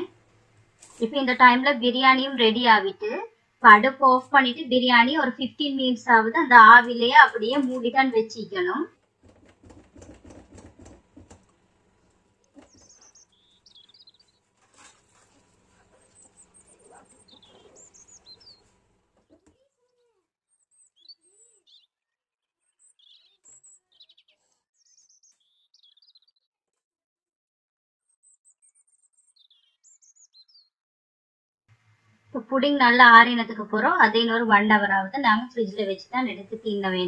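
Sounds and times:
faint birds chirping: 0.0 - 26.5, 28.0 - 30.7.

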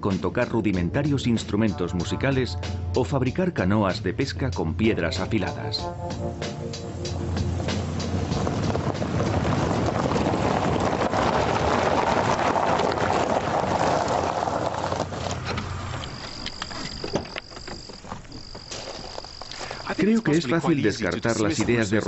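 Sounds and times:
car driving past: 6.1 - 16.2.

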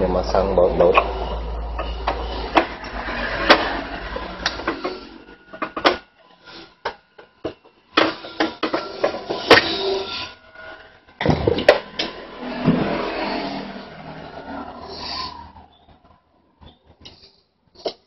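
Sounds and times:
low hum: 0.0 - 8.0.

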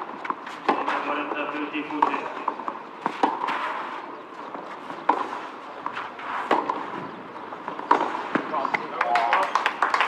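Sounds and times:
tennis racket hitting ball: 0.2 - 1.3, 1.9 - 4.0, 5.0 - 7.0, 7.7 - 9.2.

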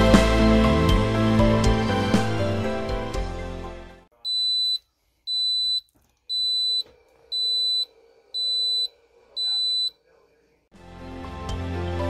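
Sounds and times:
pressure cooker high-pitched beeps: 4.3 - 9.9.

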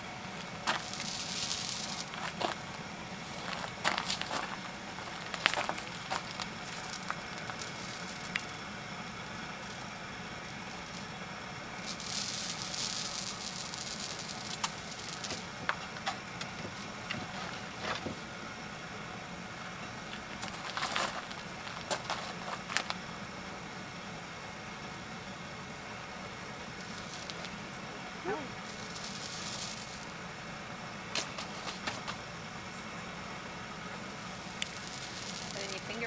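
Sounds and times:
loud hiss: 0.0 - 19.6, 20.3 - 36.0
hair sizzling on hot pot: 0.4 - 17.0, 26.7 - 27.6, 28.2 - 30.2, 34.0 - 36.0.

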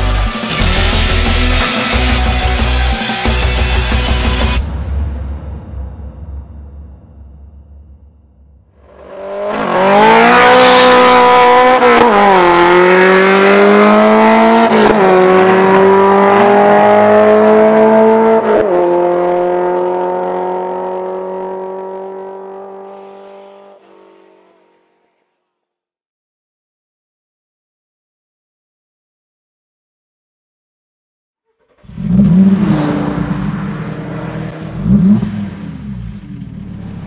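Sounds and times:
car engine revving through gears: 0.4 - 2.2, 8.8 - 25.4, 31.8 - 37.0.

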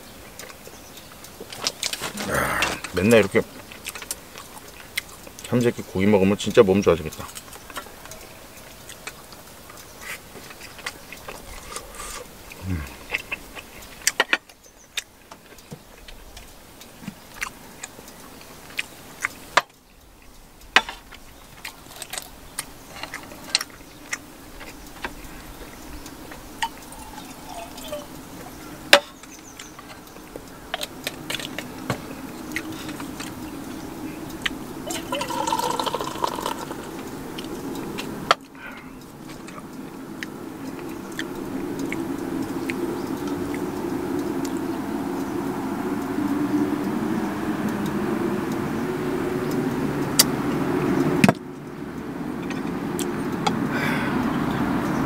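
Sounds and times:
liquid pouring into metal mug: 34.9 - 36.8.

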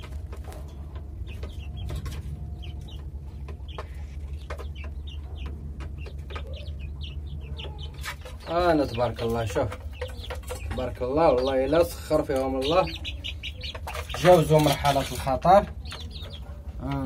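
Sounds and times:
low hum: 0.0 - 8.5
chickens peeping and clucking: 0.0 - 17.0.

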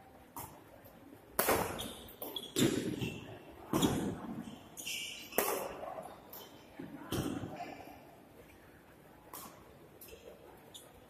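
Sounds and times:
badminton racket hitting shuttlecock: 1.4 - 3.0, 5.3 - 5.9.

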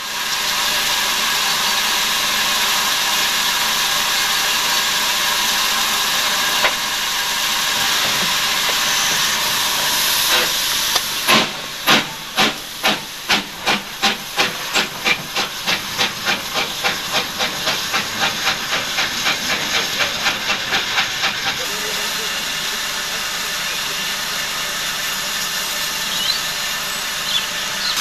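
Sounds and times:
steam hissing: 0.0 - 28.0
steam locomotive exhaust beats: 0.0 - 28.0.

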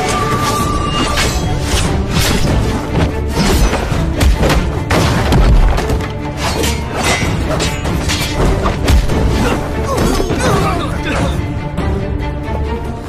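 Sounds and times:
dramatic music with deep bass: 0.0 - 13.0.

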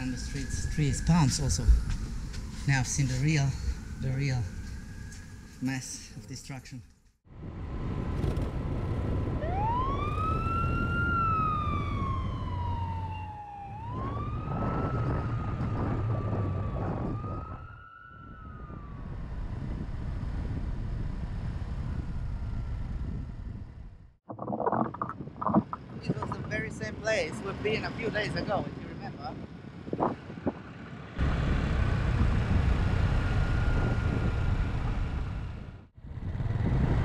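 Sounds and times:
emergency siren wailing: 0.0 - 6.1, 9.0 - 20.2, 31.2 - 35.8
scooter rumble and wind noise: 7.7 - 24.1, 24.9 - 37.0.

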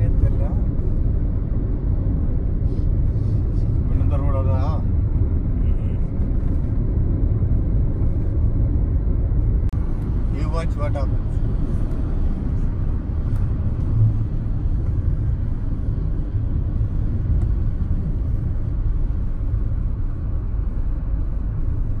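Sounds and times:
car cabin road rumble: 0.0 - 22.0.

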